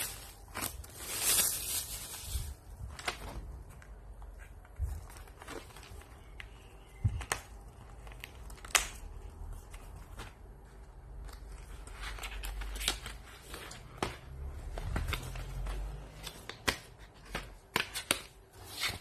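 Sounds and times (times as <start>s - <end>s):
rustling and scraping: 0.0s - 6.1s.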